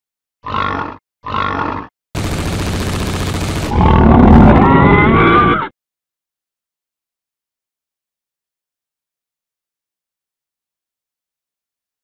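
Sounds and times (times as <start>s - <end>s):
rising cry: 3.7s - 5.7s.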